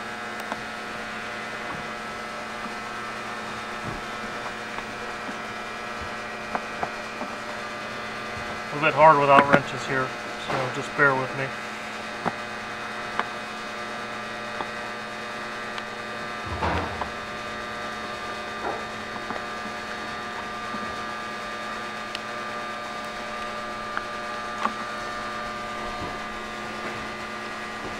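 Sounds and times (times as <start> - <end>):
electrical hum: 0.0 - 27.9.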